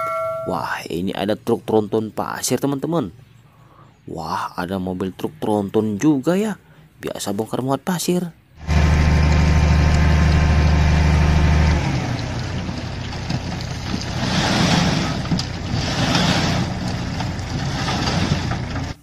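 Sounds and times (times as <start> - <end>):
rock and gravel sliding: 8.6 - 19.0
truck diesel engine droning: 8.6 - 19.0.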